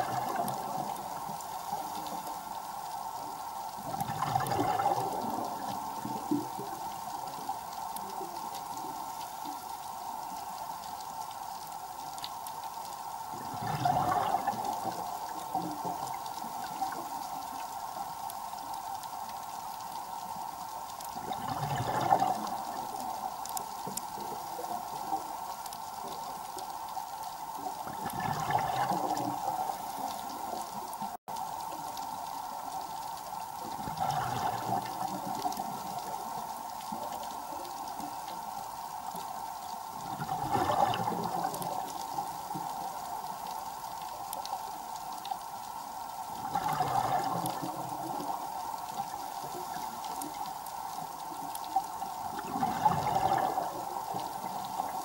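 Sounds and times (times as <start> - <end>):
exhaled bubbles gushing: 0.0 - 2.6, 3.7 - 9.7, 13.2 - 17.6, 21.1 - 26.6, 27.6 - 32.0, 33.6 - 43.5, 46.3 - 55.0.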